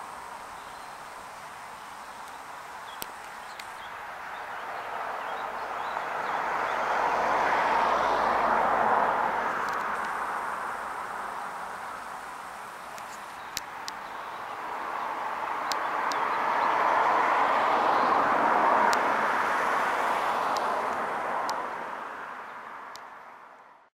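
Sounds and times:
motorway traffic rushing: 0.0s - 23.8s
faint sharp ticks: 2.2s - 3.9s, 9.6s - 10.4s, 12.6s - 14.1s, 15.6s - 16.3s, 18.9s - 19.1s, 20.5s - 21.6s.

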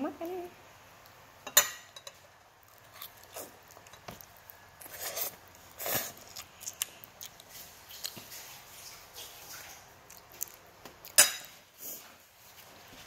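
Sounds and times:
quiet chewing: 2.6s - 12.7s
slurping noodles: 4.8s - 6.3s.

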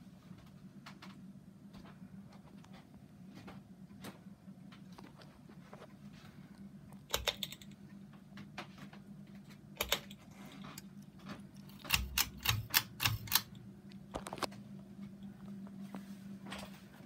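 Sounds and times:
ceiling fan motor humming: 0.0s - 17.0s.

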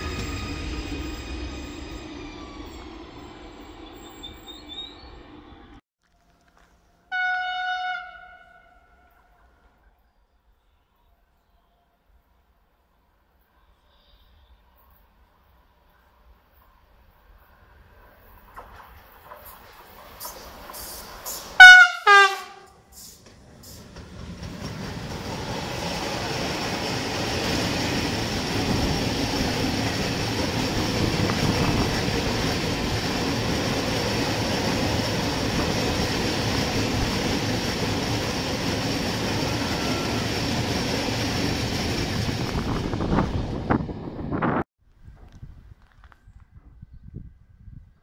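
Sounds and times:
train wheels rumbling on rails: 0.0s - 5.8s, 15.4s - 46.7s
locomotive horn blasts: 7.1s - 9.4s, 21.6s - 22.8s.

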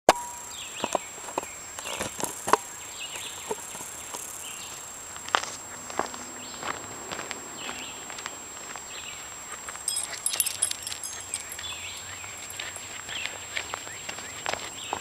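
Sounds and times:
birds chirping: 9.9s - 14.4s.

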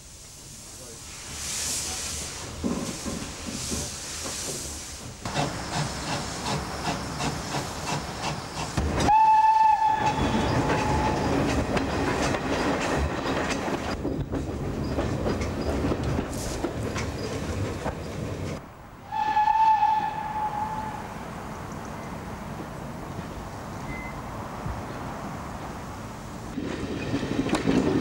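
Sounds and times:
steam hissing: 0.0s - 13.2s
train rhythmic clatter: 2.2s - 18.6s, 26.5s - 28.0s
steam whistle: 9.1s - 11.3s, 19.1s - 21.1s.

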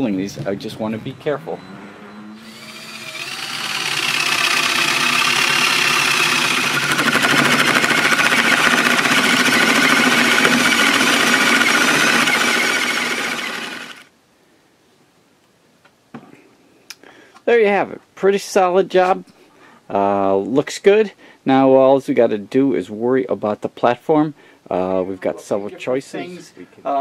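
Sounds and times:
power drill boring into wood: 2.4s - 14.1s.

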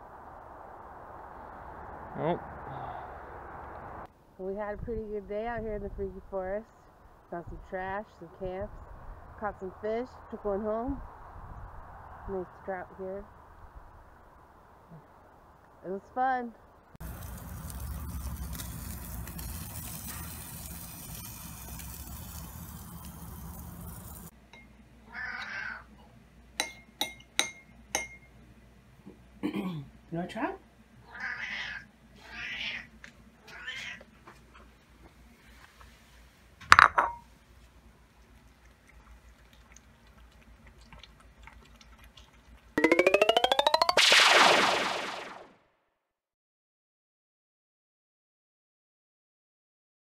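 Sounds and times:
fish sizzling on a grill: 17.0s - 24.3s
cat eating: 38.0s - 42.8s.

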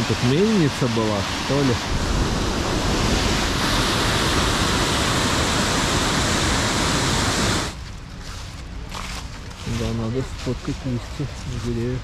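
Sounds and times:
rushing falling water: 0.0s - 7.8s.

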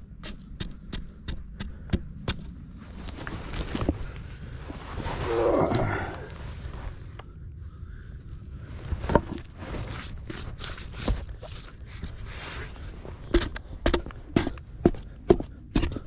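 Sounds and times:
footsteps on ballast rock: 8.9s - 16.0s.

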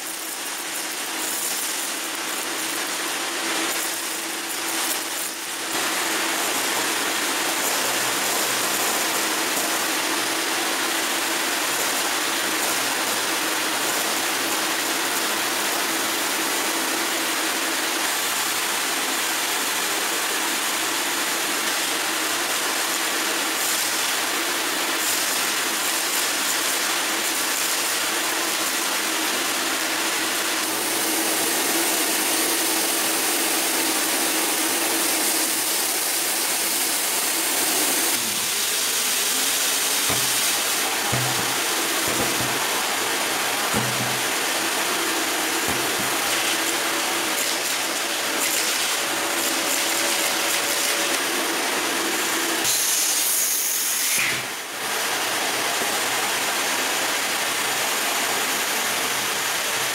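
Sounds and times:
grains rattling in vacuum hose: 0.0s - 15.6s, 23.4s - 53.0s
vacuum cleaner running: 0.0s - 59.9s.

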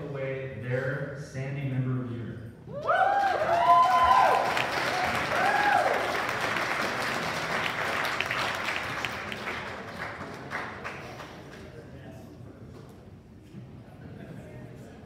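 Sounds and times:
audience applauding: 3.1s - 11.7s.

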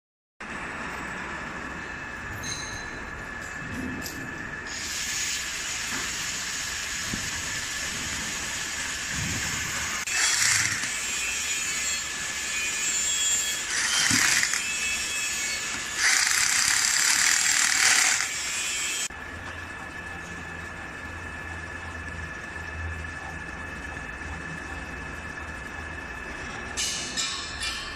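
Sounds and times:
electric wrench driving bolts: 9.8s - 19.1s.

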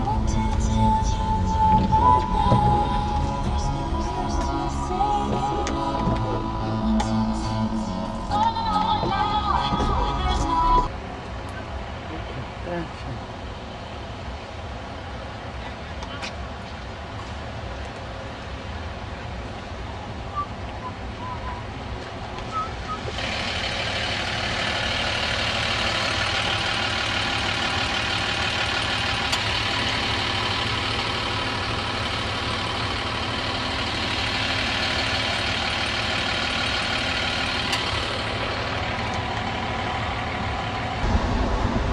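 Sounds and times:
car engine rumble: 0.0s - 41.9s
wind noise: 41.0s - 41.9s.

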